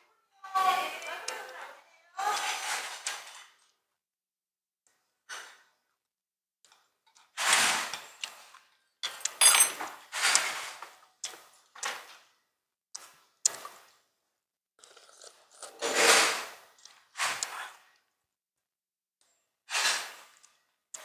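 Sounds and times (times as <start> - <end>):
people slurping hot soup: 7.4 - 8.5, 10.1 - 11.5, 14.8 - 18.0, 19.7 - 20.5.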